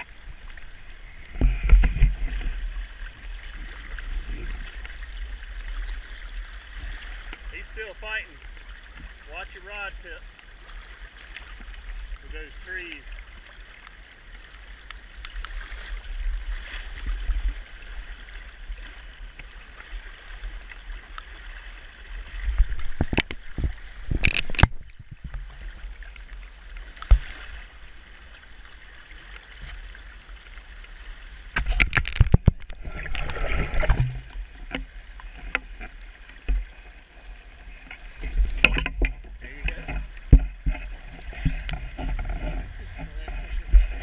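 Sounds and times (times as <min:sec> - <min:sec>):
river rushing: 0:02.1 - 0:13.8.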